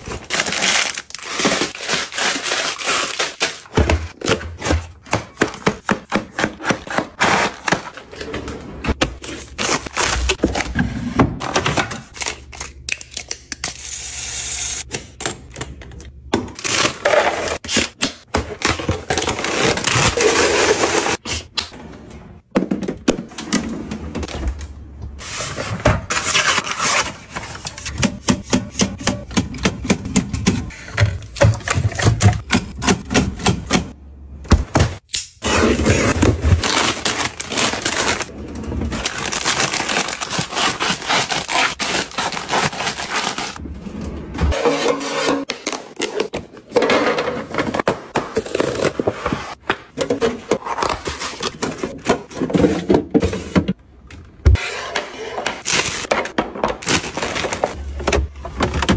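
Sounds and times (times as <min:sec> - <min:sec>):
plastic rustling and crinkling: 0:00.0 - 0:04.2, 0:36.0 - 0:43.6.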